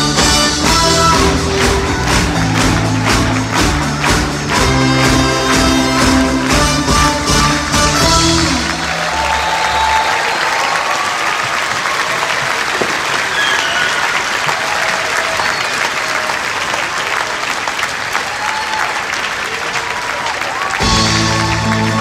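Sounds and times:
circus music: 0:00.0 - 0:11.3, 0:19.4 - 0:22.0
large audience applauding: 0:00.0 - 0:22.0.

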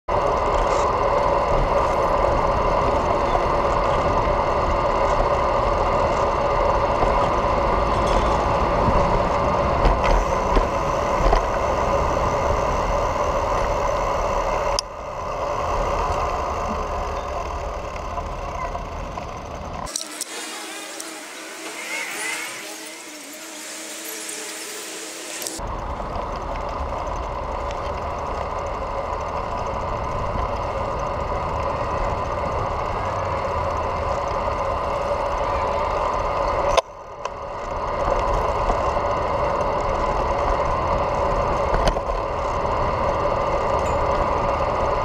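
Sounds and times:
constant hum: 0:00.1 - 0:45.0
road and wind noise: 0:00.1 - 0:45.0
passing traffic hiss: 0:19.9 - 0:25.6.

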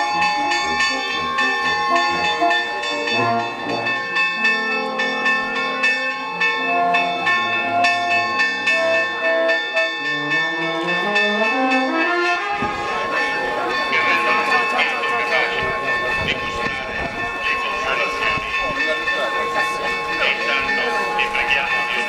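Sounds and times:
brass band playing slow melody: 0:00.0 - 0:21.9
church bells ringing fast: 0:00.0 - 0:22.0.

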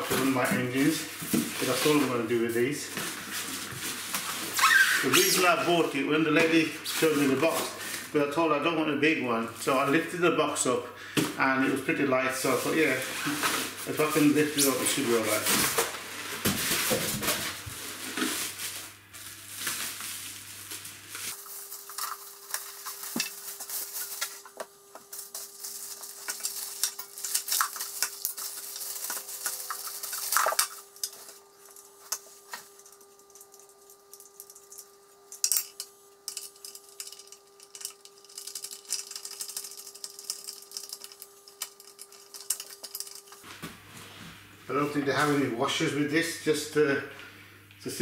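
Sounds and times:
faint steady hum: 0:00.0 - 0:48.0
plastic wrapping crinkling: 0:03.0 - 0:08.1, 0:12.4 - 0:43.7.

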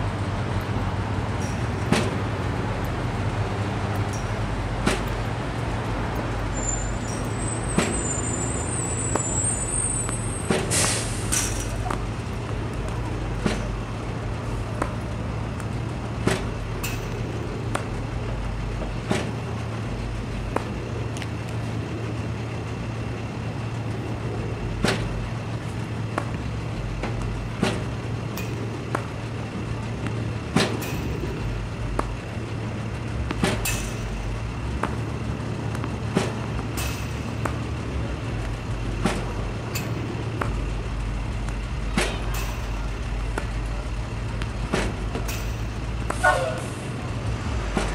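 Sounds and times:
ball machine humming: 0:00.0 - 0:47.9
racket hitting ball: 0:04.8 - 0:05.2, 0:10.1 - 0:10.7, 0:11.3 - 0:13.8, 0:14.7 - 0:18.1, 0:20.5 - 0:21.3, 0:24.8 - 0:29.2, 0:29.9 - 0:32.4, 0:33.2 - 0:38.0, 0:38.8 - 0:40.6, 0:41.4 - 0:46.6.

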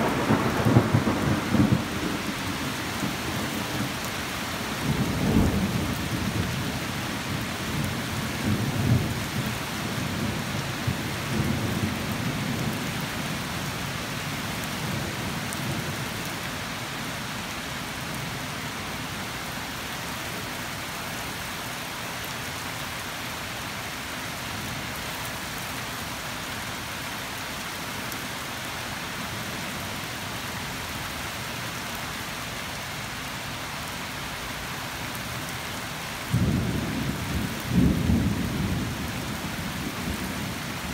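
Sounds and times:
thunder rumbling: 0:00.0 - 0:03.9
rain falling: 0:00.0 - 0:40.9.

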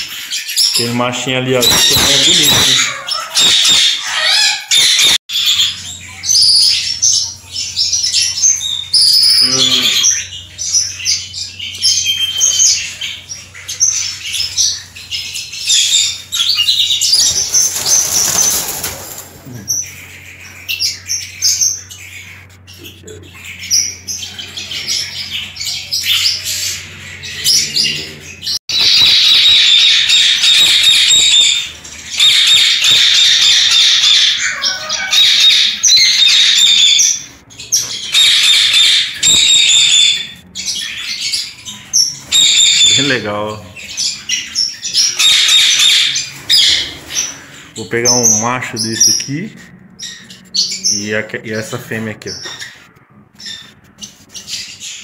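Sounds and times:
parrots chirping and calling: 0:00.0 - 0:55.0
wing flapping: 0:17.2 - 0:19.6.

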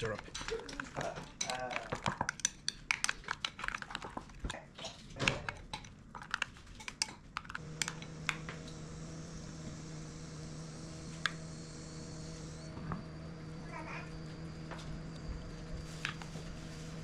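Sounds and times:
kitchen utensils and dishes clinking: 0:00.0 - 0:08.1
steady low hum: 0:07.6 - 0:17.0.

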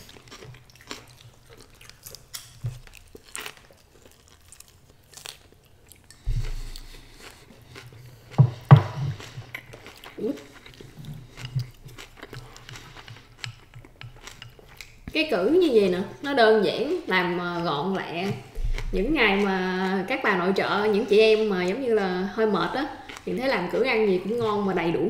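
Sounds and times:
chewing and mouth sounds: 0:00.0 - 0:25.0
dull thump: 0:08.4 - 0:09.2, 0:18.6 - 0:19.3
sharp knocks: 0:08.4 - 0:09.2
chopsticks clicking: 0:11.4 - 0:15.1.

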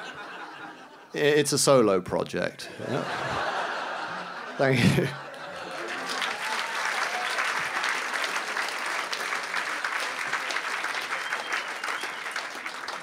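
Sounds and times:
audience applauding: 0:05.3 - 0:13.0.

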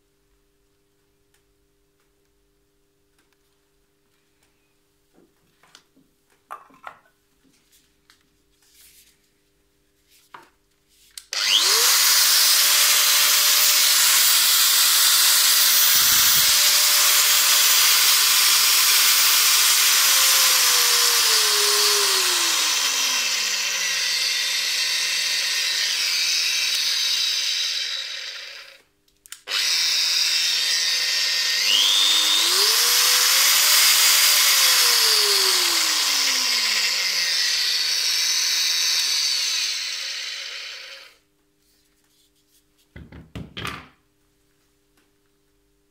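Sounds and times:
angle grinder whining: 0:11.3 - 0:28.8, 0:29.4 - 0:41.2.

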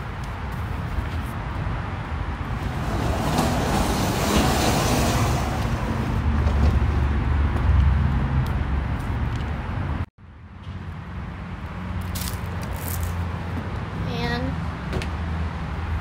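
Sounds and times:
vehicle engine hum: 0:00.0 - 0:10.1
rushing noise of passing vehicle: 0:00.0 - 0:14.0.

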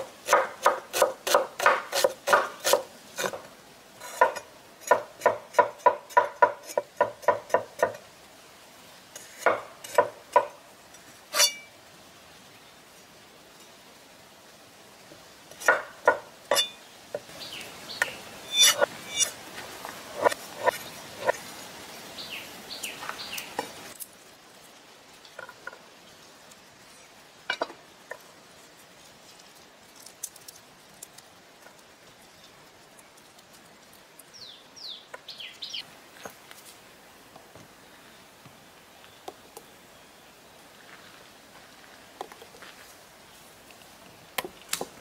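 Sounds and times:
cleaver chopping on wooden board: 0:00.2 - 0:03.4, 0:15.6 - 0:16.7.

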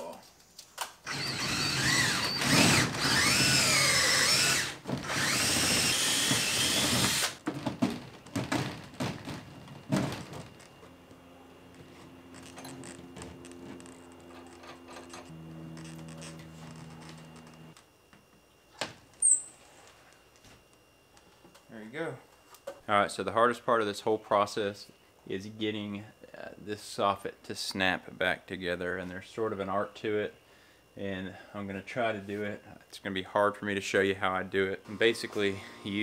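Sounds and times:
cordless drill boring into wood: 0:01.1 - 0:07.4.

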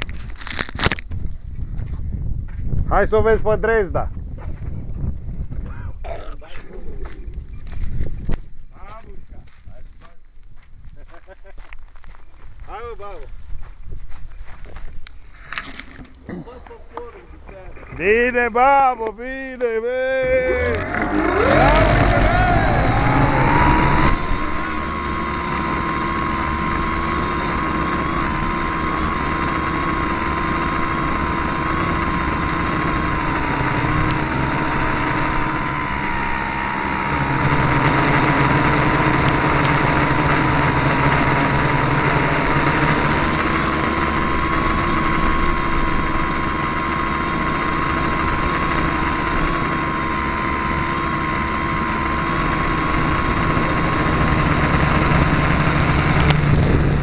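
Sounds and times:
drone motors and propellers whining: 0:20.2 - 0:57.0.

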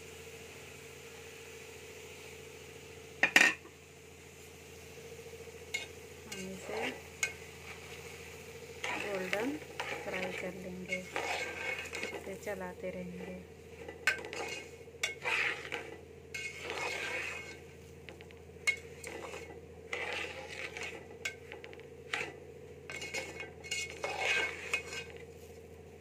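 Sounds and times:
low hum: 0:03.8 - 0:26.0
metal spoon scraping a pot: 0:05.7 - 0:08.0, 0:08.8 - 0:25.4.

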